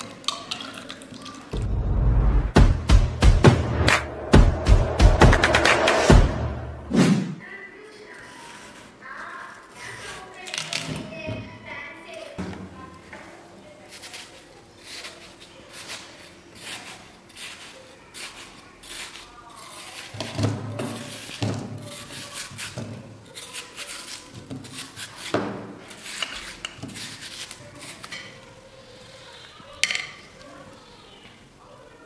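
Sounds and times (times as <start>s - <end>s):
knife scraping watermelon: 8.1s - 10.6s, 13.8s - 29.3s.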